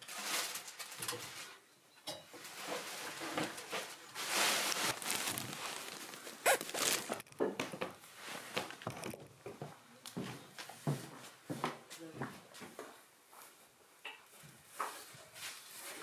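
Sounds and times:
insulation slabs rustling and scraping: 0:02.4 - 0:09.2.

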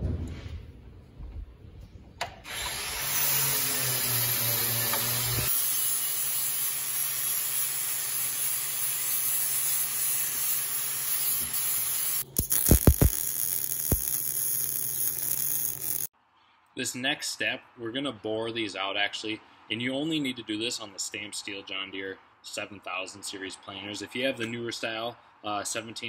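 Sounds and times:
angle grinder grinding steel: 0:02.5 - 0:16.1
welder arc crackling: 0:02.5 - 0:16.1.

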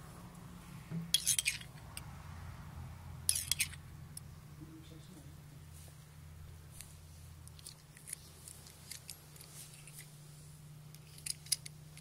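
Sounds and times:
metal spoon clinking on glass: 0:03.3 - 0:03.8.

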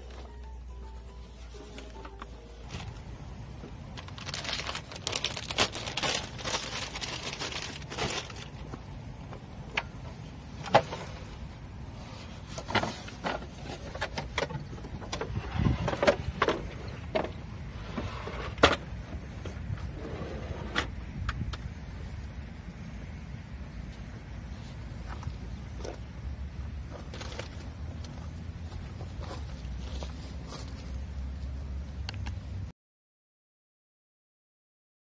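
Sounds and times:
rustling: 0:00.0 - 0:18.8, 0:26.8 - 0:31.5.

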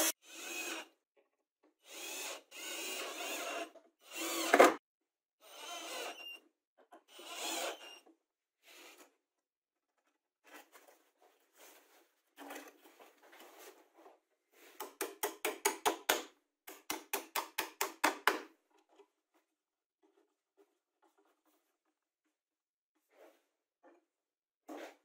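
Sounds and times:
soft scraping and rustling: 0:10.4 - 0:14.7
hammer driving nail into wood: 0:14.8 - 0:18.5.

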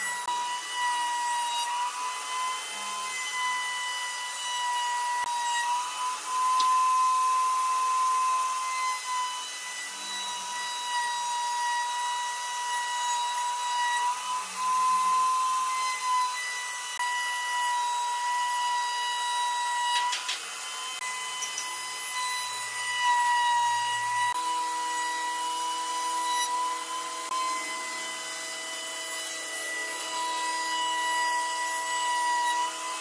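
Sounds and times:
power tool motor whining: 0:00.0 - 0:33.0.

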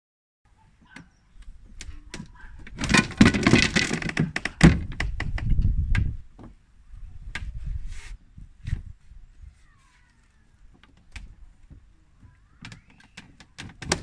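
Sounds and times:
rumbling handling noise: 0:00.9 - 0:14.0
wooden bench knocks and clicks: 0:02.1 - 0:06.6, 0:10.8 - 0:14.0
pulley tackle rattling: 0:02.7 - 0:05.6.

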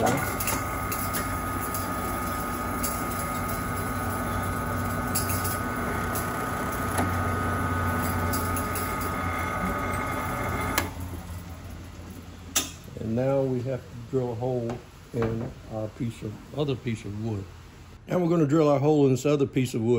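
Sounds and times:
drill press drilling plywood: 0:00.0 - 0:11.3.

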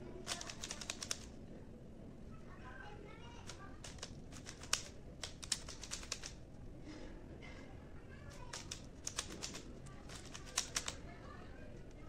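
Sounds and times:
puzzle cube clicking as twisted: 0:00.3 - 0:01.3, 0:03.5 - 0:06.4, 0:08.4 - 0:11.0.

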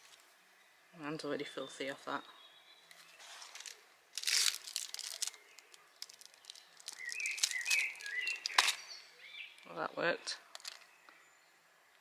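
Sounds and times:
small birds chirping: 0:00.0 - 0:12.0
paper crackling in flame: 0:03.2 - 0:08.8.

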